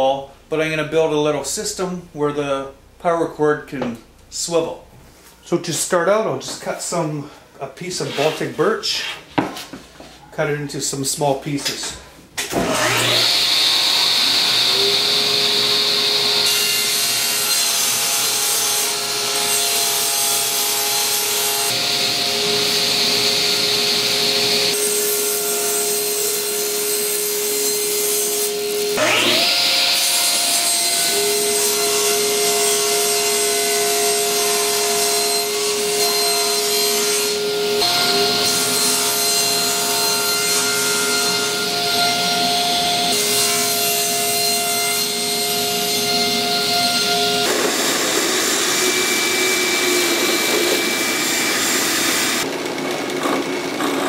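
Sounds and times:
table saw motor whining: 0:12.6 - 0:32.2, 0:35.2 - 0:54.0
saw blade cutting wood: 0:12.6 - 0:52.5.

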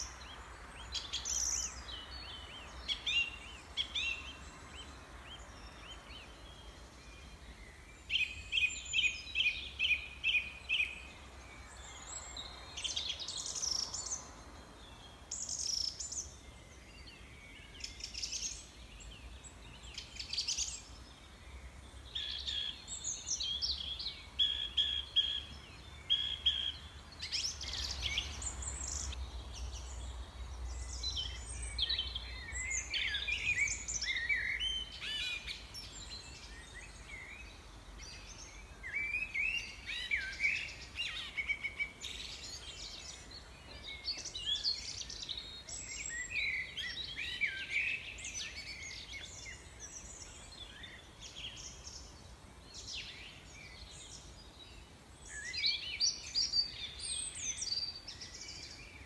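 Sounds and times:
songbirds chirping and singing: 0:00.0 - 0:59.0.

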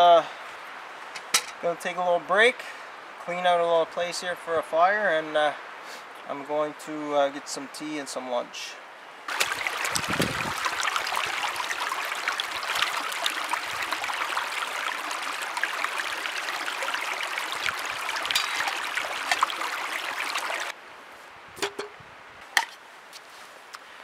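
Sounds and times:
river babbling over rocks: 0:09.3 - 0:20.7
pot knocking on logs: 0:18.3 - 0:19.6, 0:21.6 - 0:21.9.

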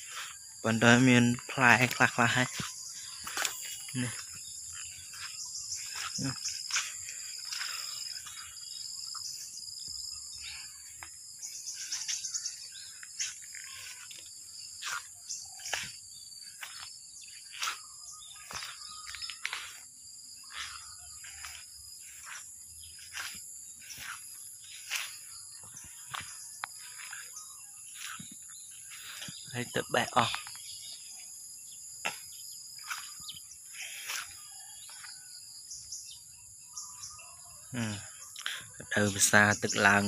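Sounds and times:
short sharp insect chirps: 0:00.0 - 0:35.3
insects droning: 0:00.0 - 0:40.0.

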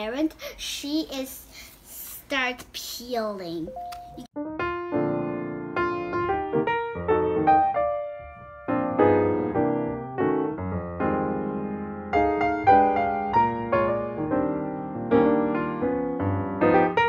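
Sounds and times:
gentle piano music: 0:03.7 - 0:17.0.

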